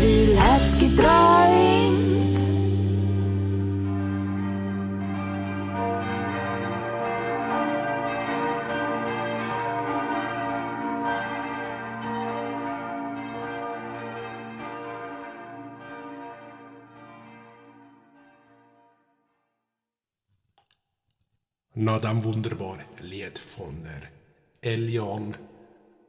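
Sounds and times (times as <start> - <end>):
church bells pealing: 0.0 - 18.5.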